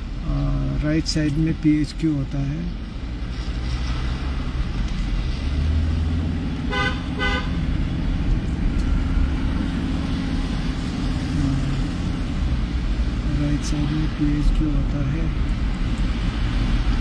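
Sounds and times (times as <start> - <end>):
car rumble inside cabin: 0.0 - 17.0
vehicle horn toots: 6.7 - 7.6.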